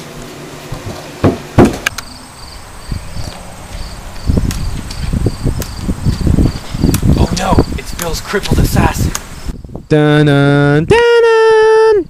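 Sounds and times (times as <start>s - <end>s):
sharp knocks: 0.8s - 2.0s
low rumbling noise: 1.8s - 10.4s
insects chirping: 1.9s - 10.9s.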